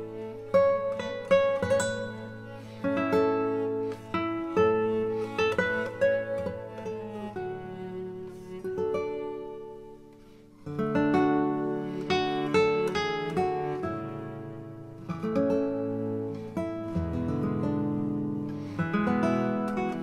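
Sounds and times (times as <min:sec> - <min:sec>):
acoustic guitar music: 0:00.0 - 0:20.0.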